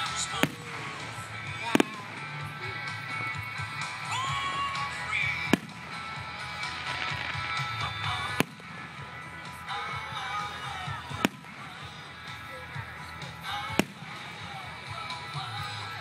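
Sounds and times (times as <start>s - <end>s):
music: 0.0s - 16.0s
firework shells bursting: 5.5s - 9.0s, 13.8s - 14.6s.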